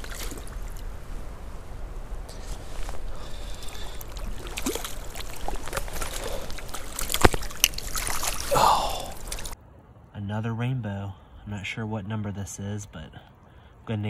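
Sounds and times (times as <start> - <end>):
fish splashing at water surface: 0.0 - 0.9, 2.9 - 9.6
moving water: 0.0 - 9.8.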